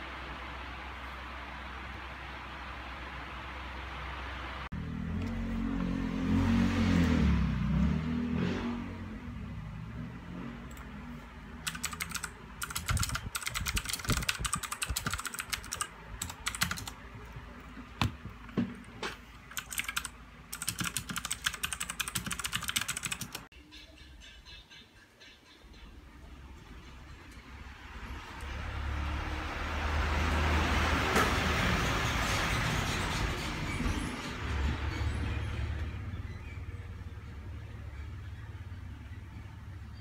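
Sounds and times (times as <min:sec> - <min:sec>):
mechanical keyboard typing: 0:11.6 - 0:17.0, 0:19.4 - 0:23.5.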